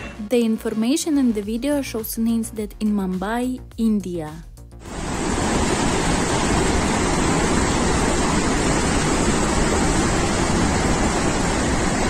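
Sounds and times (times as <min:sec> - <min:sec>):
water rushing from spillway: 0:04.8 - 0:12.0.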